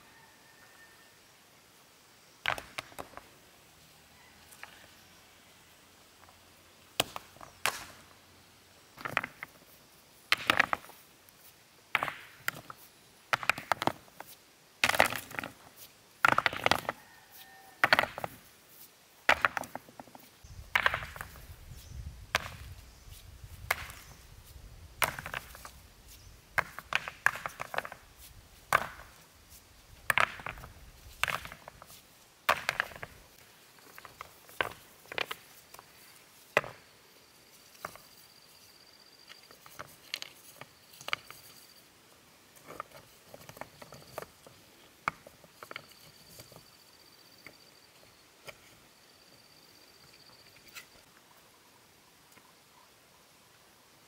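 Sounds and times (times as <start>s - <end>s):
stones clacking against stones: 2.4s - 3.3s, 8.9s - 18.6s, 19.2s - 36.9s, 37.6s - 38.2s, 39.2s - 41.8s, 42.5s - 46.7s.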